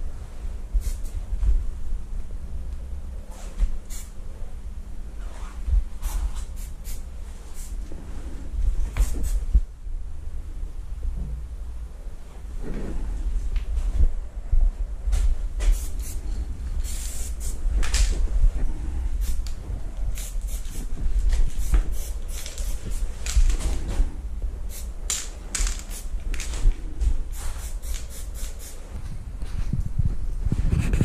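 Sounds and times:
steady low rumble: 0.0s - 31.0s
spray-paint can hissing: 0.8s - 1.2s, 3.8s - 4.2s, 6.0s - 7.8s, 9.0s - 9.5s, 15.7s - 16.2s, 16.8s - 17.6s, 19.2s - 19.5s, 20.1s - 20.9s, 21.5s - 23.1s, 24.7s - 26.1s, 27.3s - 28.8s.

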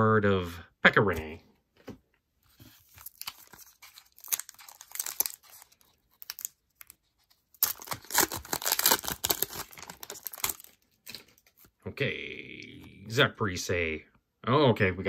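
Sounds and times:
foil wrapper tearing and crinkling: 2.8s - 11.7s.

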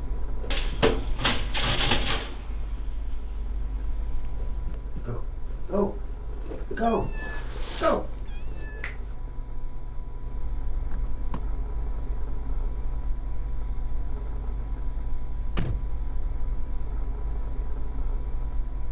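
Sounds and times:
low rumbling hum: 0.0s - 18.9s
faint high tone: 6.9s - 7.5s, 8.3s - 9.0s.

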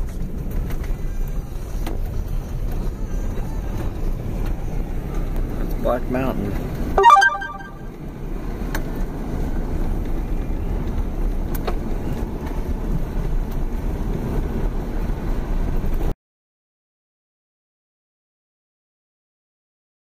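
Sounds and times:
car engine and tyres rumbling: 0.0s - 7.0s, 8.2s - 16.1s.

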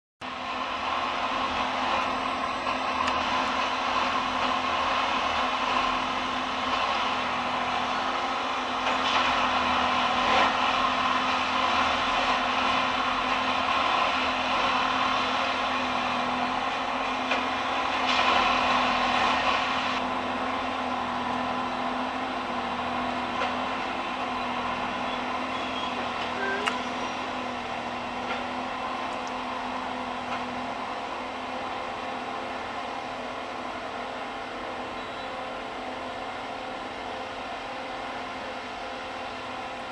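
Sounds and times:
diesel engines running: 0.2s - 39.9s.

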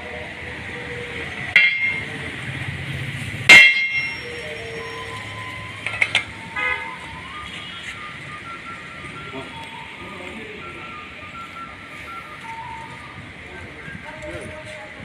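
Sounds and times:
sharp ringing metal clanks: 1.5s - 2.1s, 3.5s - 4.4s.

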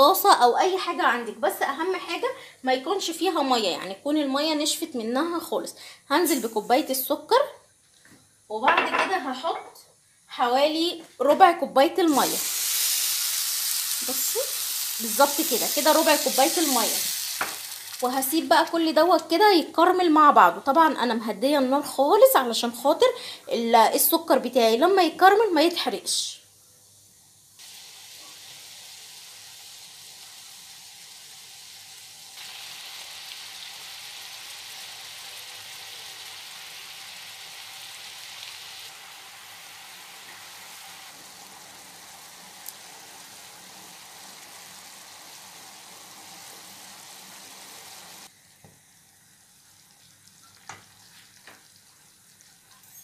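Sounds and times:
syrup bubbling and sizzling in a wok: 12.0s - 19.3s, 26.9s - 53.0s.

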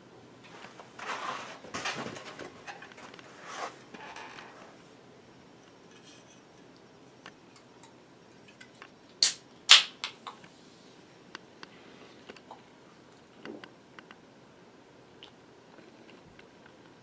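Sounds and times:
can opening crack and hiss: 9.2s - 10.2s.

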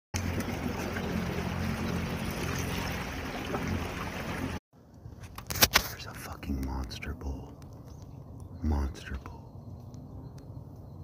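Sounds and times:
small boat motor humming: 0.2s - 4.6s.

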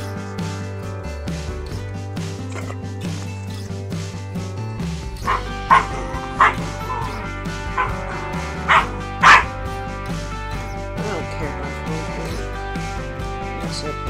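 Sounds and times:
background music: 0.0s - 14.0s
puppies yipping: 2.4s - 3.7s, 5.2s - 9.6s.

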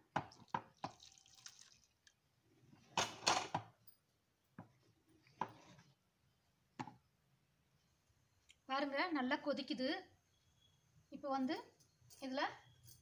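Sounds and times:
syrup pouring into pot: 0.7s - 2.1s.

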